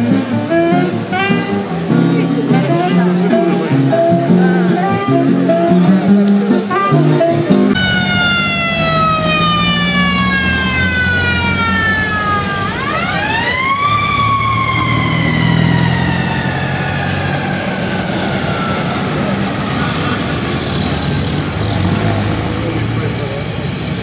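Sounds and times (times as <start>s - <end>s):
car engines running: 0.0s - 24.0s
police siren wailing: 7.7s - 20.7s.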